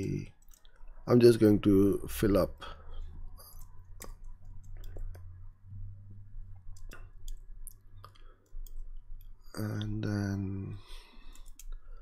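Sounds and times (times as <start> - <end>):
low steady hum: 0.0 - 12.0
keyboard typing clicks: 6.7 - 9.3, 11.3 - 11.8.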